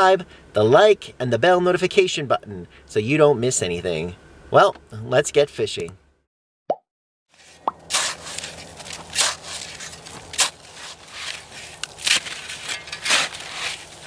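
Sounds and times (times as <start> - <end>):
shovel scraping crusted snow: 7.3 - 14.0.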